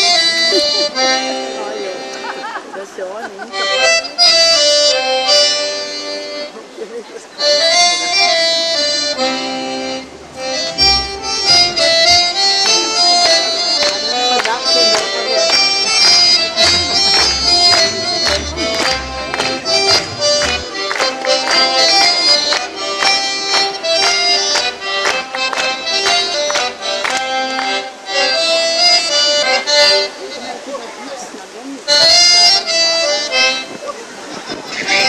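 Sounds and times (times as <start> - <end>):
lively folk dance music: 0.0 - 31.0, 31.8 - 35.0
hand claps: 11.5 - 27.7.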